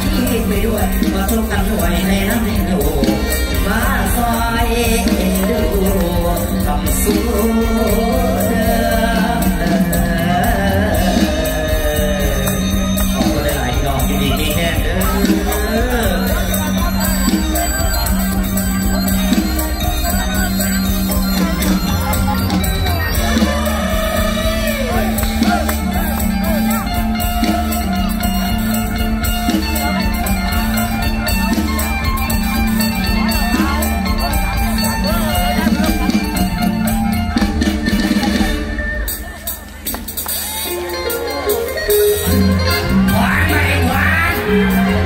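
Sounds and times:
person singing over band: 0.0s - 27.9s, 42.2s - 45.0s
steady drum beat: 0.0s - 40.9s.

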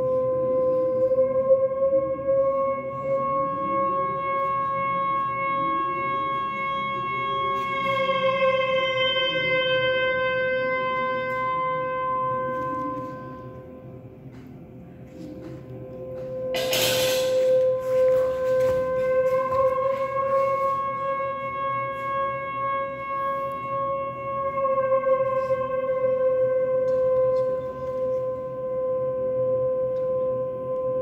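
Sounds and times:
high note held steadily: 0.0s - 31.0s.

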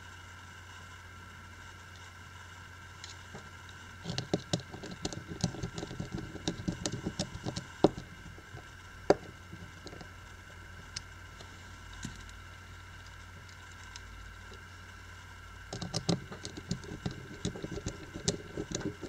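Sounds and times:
screwdriver clicks and taps: 15.7s - 19.0s.

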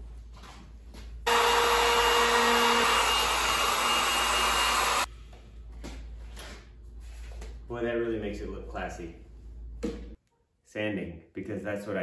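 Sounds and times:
wood router whining: 1.3s - 5.1s.

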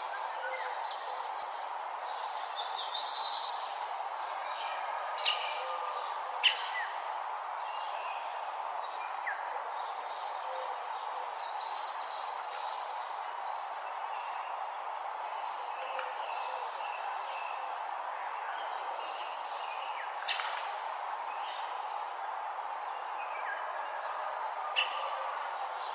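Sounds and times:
birds chirping and trilling: 0.0s - 14.6s, 22.9s - 25.9s
background hiss: 0.0s - 25.9s.

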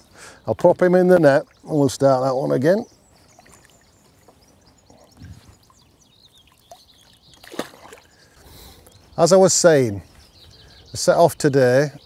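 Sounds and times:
short sharp water splash: 7.4s - 8.1s.

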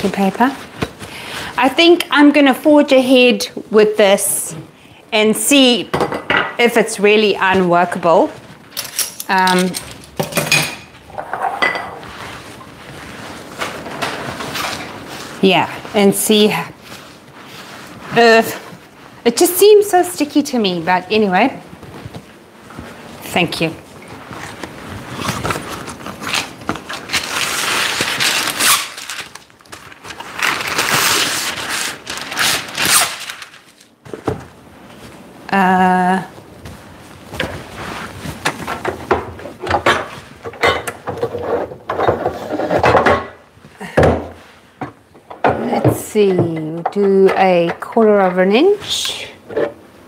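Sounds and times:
dishes clattering in steel sink: 10.2s - 12.0s
baking paper crinkling and tearing: 24.2s - 34.0s.

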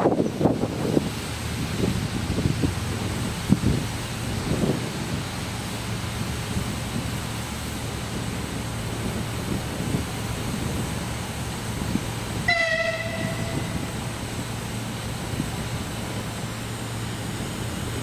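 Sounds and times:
electric train rumbling: 0.0s - 18.0s
train horn blast: 12.4s - 14.2s.

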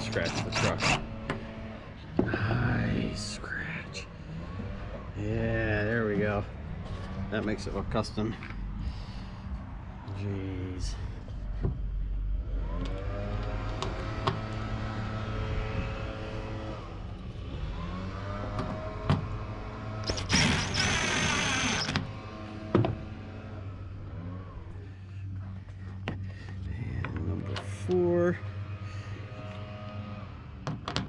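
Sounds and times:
impact driver motor whine: 12.6s - 23.4s.

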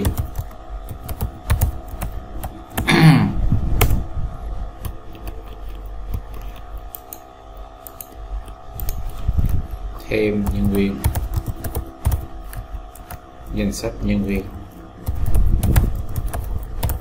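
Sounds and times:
keyboard keystrokes: 0.0s - 2.9s, 10.4s - 13.2s, 15.0s - 17.0s
faint steady hum: 0.0s - 17.0s.

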